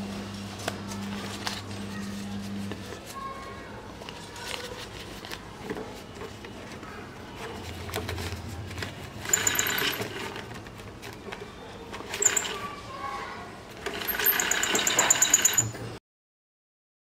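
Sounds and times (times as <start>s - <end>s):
electronic toy bank tones: 9.2s - 10.4s, 12.1s - 12.6s, 13.9s - 15.9s.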